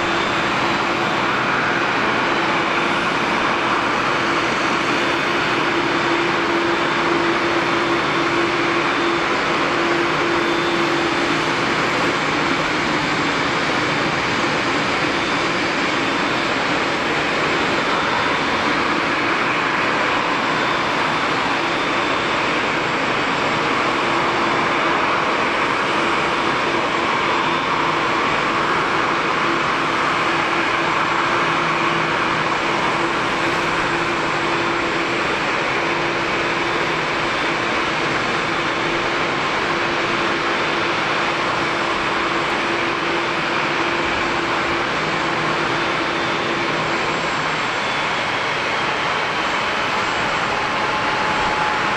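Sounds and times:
jet turbine whine and hiss: 0.0 - 51.9.

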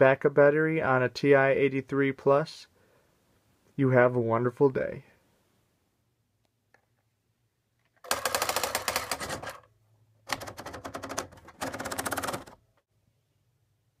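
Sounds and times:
typewriter keys striking: 8.0 - 9.6, 10.3 - 12.6.

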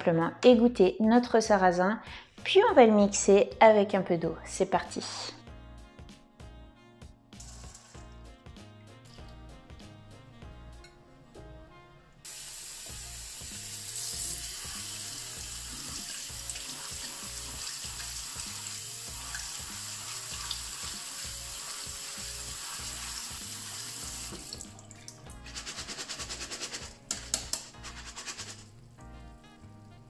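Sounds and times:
strainer rattling: 7.4 - 8.0, 25.4 - 28.6
tap water running into strainer: 12.3 - 29.0.

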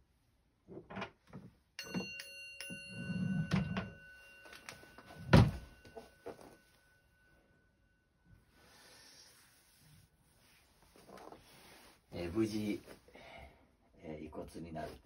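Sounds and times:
small bell ringing: 1.8 - 8.5.

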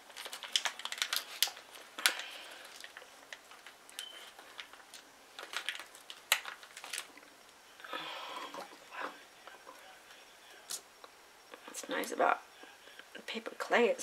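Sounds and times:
paper clicks taps and crinkles: 0.0 - 7.3.

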